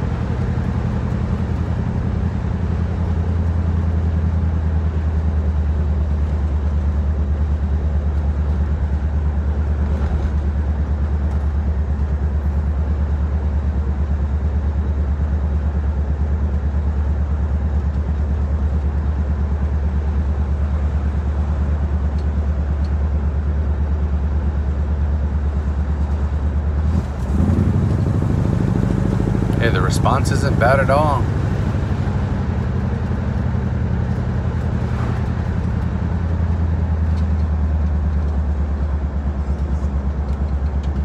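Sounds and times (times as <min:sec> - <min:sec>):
car engine drone from inside: 0:00.0 - 0:41.0.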